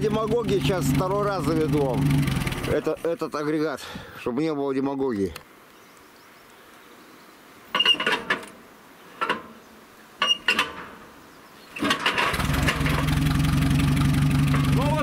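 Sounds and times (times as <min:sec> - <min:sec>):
engine running steadily: 0:00.0 - 0:02.8, 0:12.2 - 0:15.0
hand crank clanking: 0:11.8 - 0:13.2.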